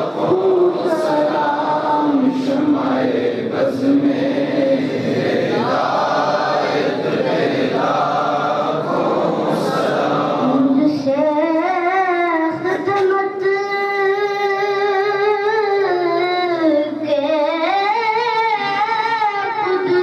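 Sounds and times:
men chanting in unison: 0:00.0 - 0:10.8.

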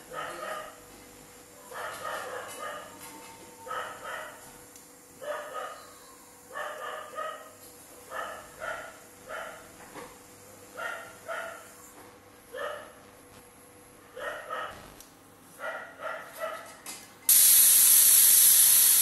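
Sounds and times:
dog barking: 0:00.1 - 0:00.8, 0:01.6 - 0:03.0, 0:03.6 - 0:04.4, 0:05.2 - 0:09.7, 0:10.8 - 0:11.7, 0:12.5 - 0:13.0, 0:14.1 - 0:14.9, 0:15.6 - 0:16.8.

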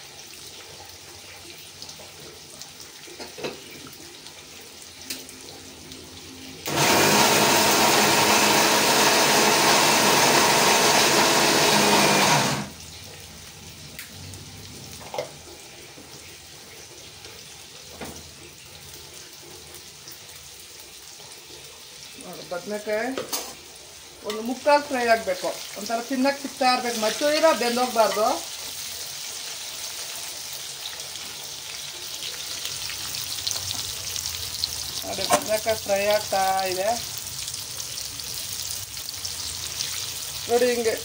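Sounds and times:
eggplant sizzling in oil: 0:00.0 - 0:08.2, 0:08.8 - 0:41.0
electric mixer grinder grinding spices: 0:06.7 - 0:12.8.

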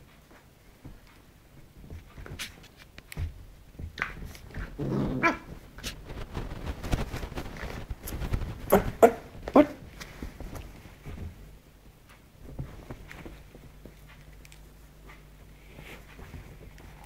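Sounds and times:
rustles and bumps on bedding: 0:00.0 - 0:17.0
puppy growling: 0:04.7 - 0:05.6.

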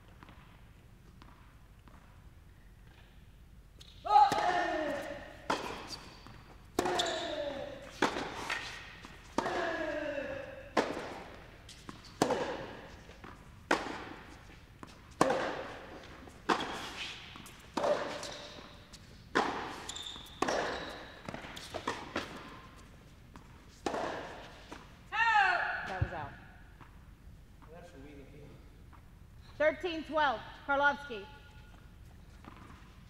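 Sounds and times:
tennis ball bounces: 0:00.0 - 0:02.2, 0:04.3 - 0:09.6, 0:10.7 - 0:24.9
tennis racket strikes: 0:04.1 - 0:09.9, 0:10.7 - 0:22.6, 0:23.7 - 0:24.9.

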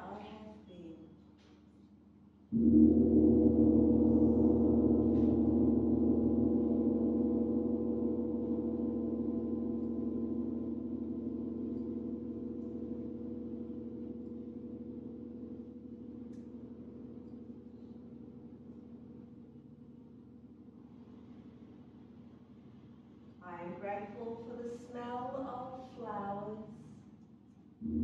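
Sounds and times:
large gong ringing: 0:02.5 - 0:20.7.

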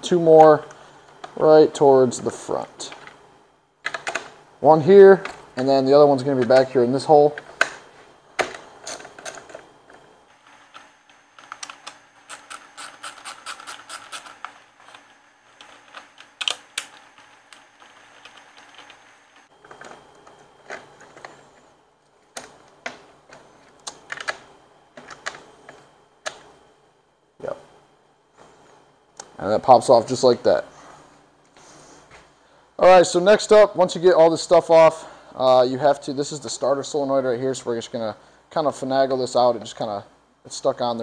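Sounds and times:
socket ratchet clicking: 0:12.3 - 0:14.4.

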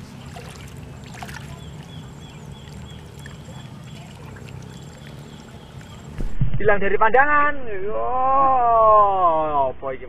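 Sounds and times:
water lapping and splashing: 0:00.0 - 0:06.2
steady low hum: 0:00.0 - 0:10.0.

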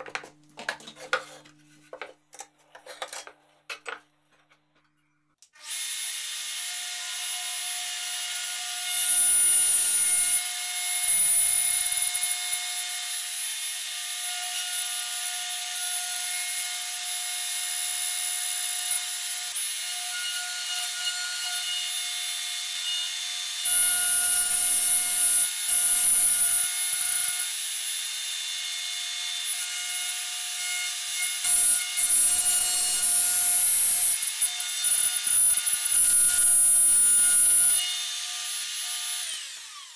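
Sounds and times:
router whining: 0:05.5 - 0:10.4, 0:29.4 - 0:39.9
router bit cutting plywood: 0:19.2 - 0:39.9.

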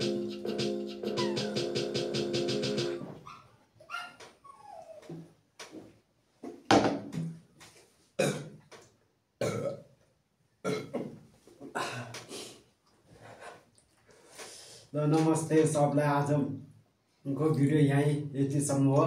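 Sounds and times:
man burping: 0:08.2 - 0:08.5, 0:09.4 - 0:09.9, 0:10.6 - 0:11.1.

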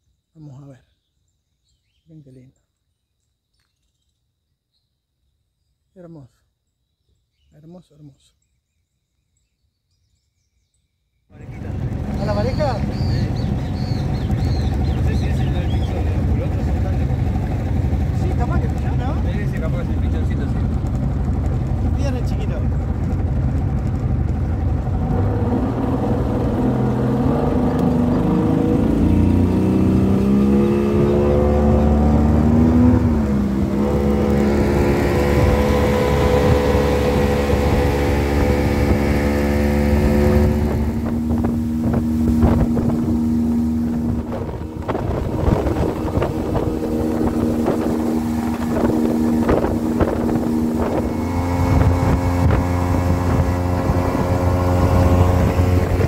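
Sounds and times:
motorboat engine: 0:11.4 - 0:56.0
water rushing past hull: 0:11.4 - 0:56.0
wind on microphone: 0:11.4 - 0:56.0.

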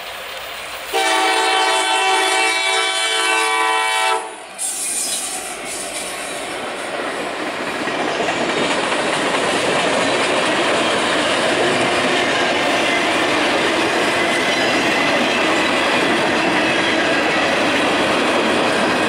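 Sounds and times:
diesel locomotive engine: 0:00.0 - 0:19.0
train wheels rolling on rails: 0:00.0 - 0:19.0
locomotive air horn chord: 0:00.9 - 0:04.4.

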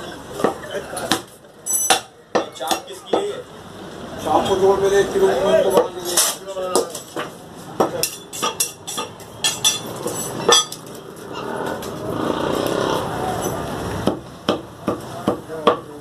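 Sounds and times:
passing motor vehicle: 0:07.2 - 0:16.0
cleaver chopping meat on wood: 0:14.0 - 0:16.0.

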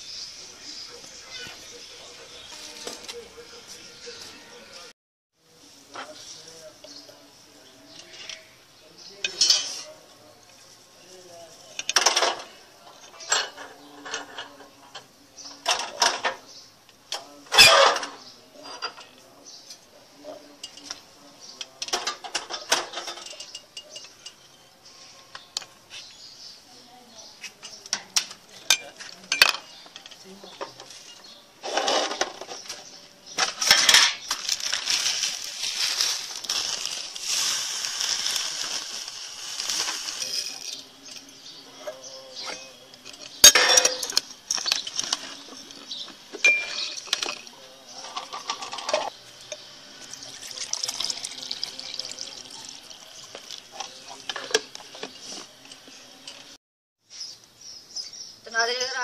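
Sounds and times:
sharp glass clinks: 0:46.4 - 0:47.4
milk pouring into a glass: 0:50.0 - 0:54.3.

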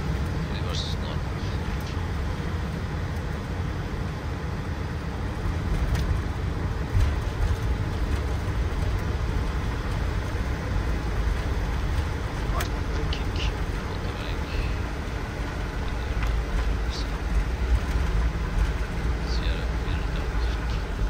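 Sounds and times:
low rumble of jet engines and wheels: 0:00.0 - 0:21.0.

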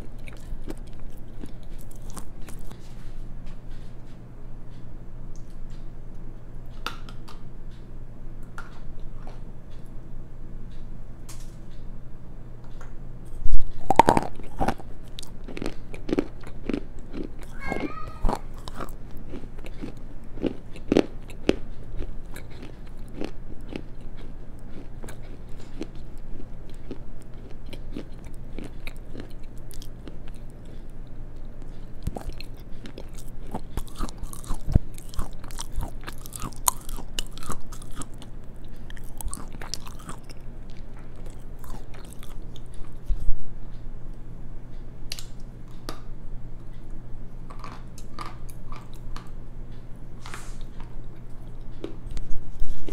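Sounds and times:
chewing crunchy slate: 0:00.0 - 0:02.8, 0:13.3 - 0:43.3.

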